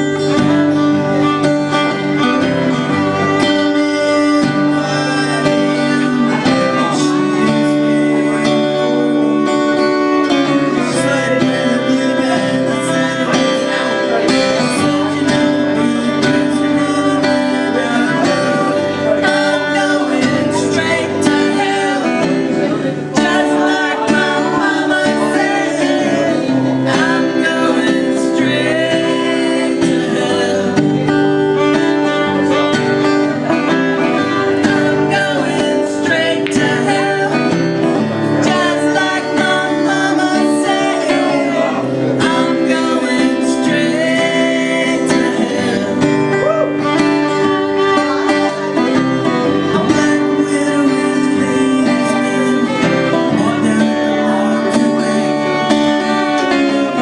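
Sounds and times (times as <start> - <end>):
acoustic guitar strumming: 0.0 - 57.0
fiddle playing: 45.5 - 51.0.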